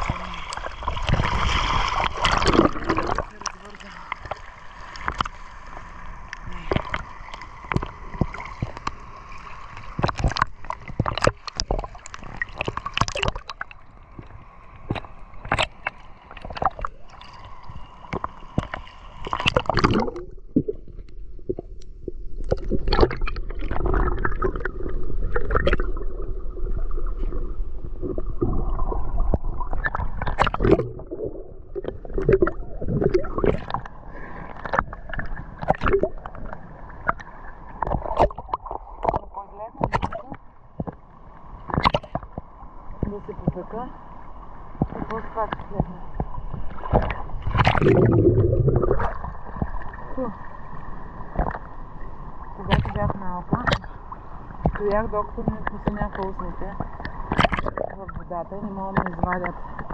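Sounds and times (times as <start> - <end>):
muffled underwater gurgling: 0.0 - 4.5, 6.2 - 9.1, 9.9 - 41.0, 43.0 - 44.0, 44.8 - 50.6, 52.4 - 59.9
water lapping and splashing: 0.0 - 59.9.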